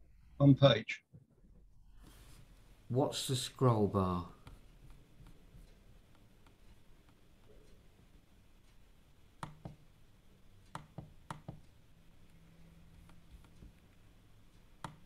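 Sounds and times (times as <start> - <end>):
computer mouse clicking: 9.4 - 9.8, 10.6 - 12.4, 13.0 - 15.0.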